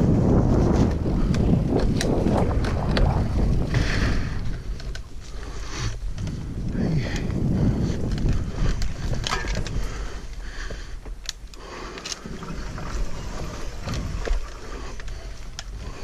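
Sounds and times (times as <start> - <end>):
low rumble: 0.0 - 10.4
bike knocking and rattling: 0.0 - 16.0
bike tyres rolling over dirt: 0.0 - 16.0.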